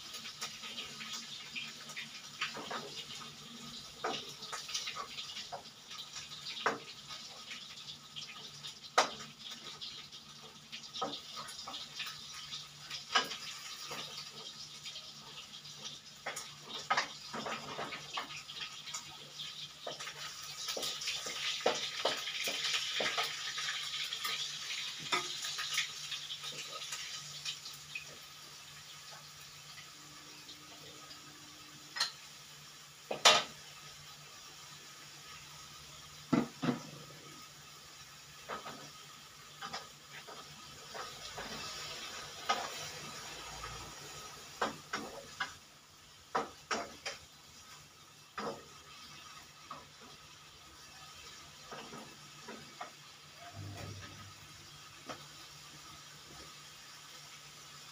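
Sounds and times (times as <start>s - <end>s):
pots and utensils clinking: 0.0s - 32.3s, 33.1s - 33.8s, 36.2s - 37.5s, 38.3s - 45.6s, 46.3s - 55.5s
steady hiss: 0.0s - 57.9s.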